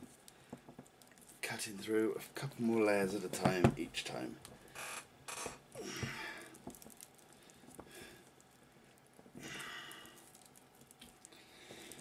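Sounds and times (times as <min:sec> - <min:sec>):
effortful breaths out: 0:05.8 - 0:06.6, 0:09.4 - 0:10.2.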